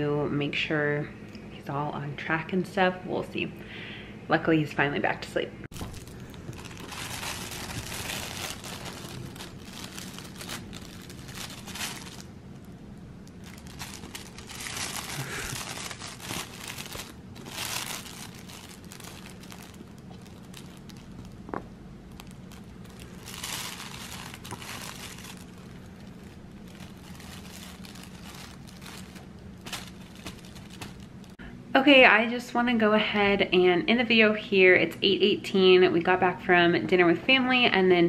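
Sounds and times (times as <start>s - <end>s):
crinkly fabric pages rustling: 5.7s - 31.4s.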